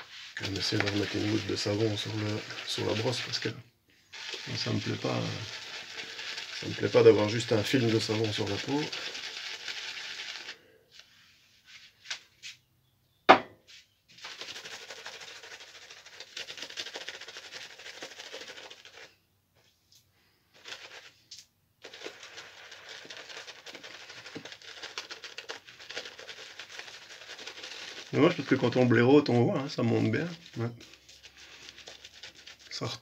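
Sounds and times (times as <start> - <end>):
shaving brush scratchy crackle: 0.0 - 11.9, 14.1 - 19.2, 20.2 - 33.0
sharp knock: 13.3 - 13.6.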